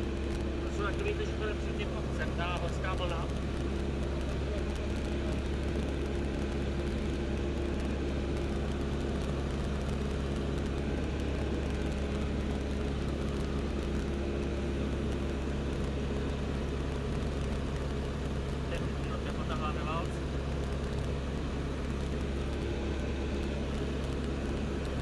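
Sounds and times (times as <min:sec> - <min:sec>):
propeller aircraft engine droning: 0:00.0 - 0:25.0.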